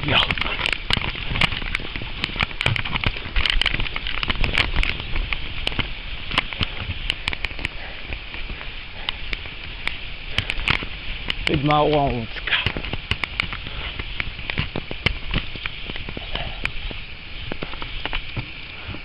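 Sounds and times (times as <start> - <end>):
crackling clicks: 0.0 - 19.0
wind buffeting microphone: 0.0 - 19.0.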